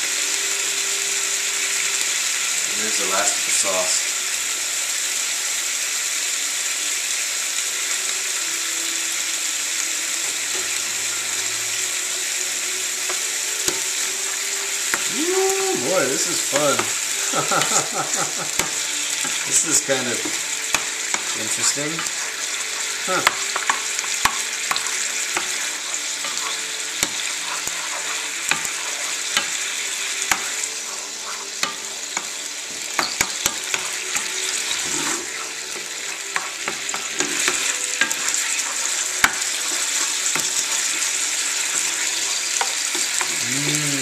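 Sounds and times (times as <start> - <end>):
food sizzling in a frying pan: 0.0 - 44.0
spatula scraping and tapping pan: 13.0 - 15.1, 16.2 - 43.4.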